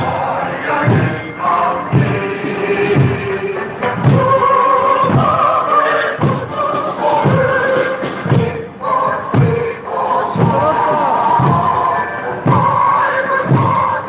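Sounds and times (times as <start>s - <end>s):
big drum beating march rhythm: 0.0s - 14.0s
voices singing a march song: 0.0s - 14.0s.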